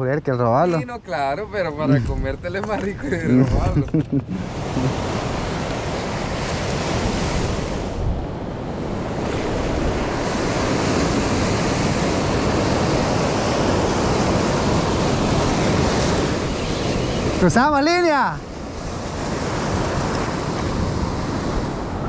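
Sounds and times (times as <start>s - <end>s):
wind buffeting microphone: 1.2s - 22.0s
surf breaking on stony beach: 4.4s - 22.0s.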